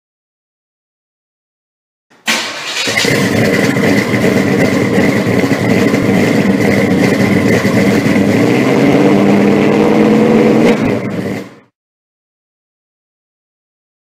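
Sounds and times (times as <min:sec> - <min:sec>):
car engine running loudly: 0:02.3 - 0:11.7.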